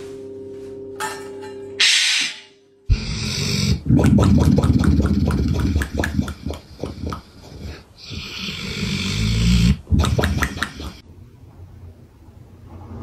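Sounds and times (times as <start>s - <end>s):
dog snoring: 2.9s - 3.8s, 6.9s - 11.0s.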